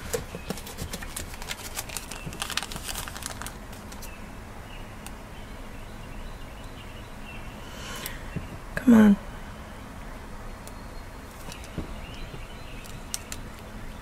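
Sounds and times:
plastic packet crinkling and clicking: 0.0 - 4.1, 11.3 - 11.8, 12.8 - 13.7.

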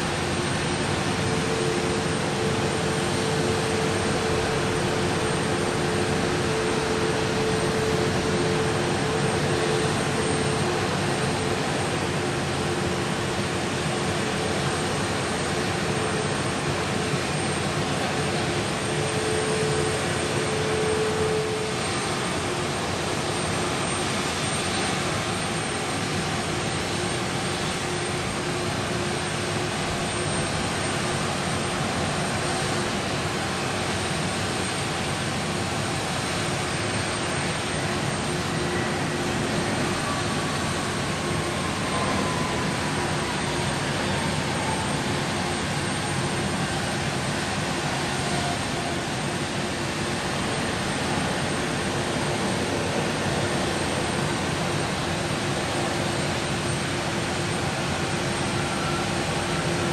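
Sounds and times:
jet engines idling: 0.0 - 59.9.

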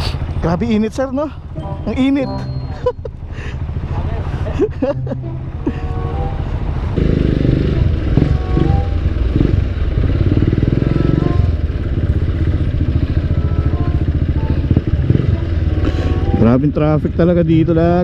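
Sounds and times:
motorcycle engine pulling away: 6.5 - 18.0.

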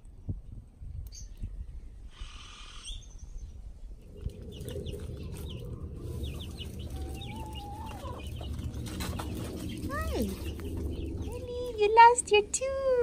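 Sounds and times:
hens clucking and calling: 4.1 - 11.3.

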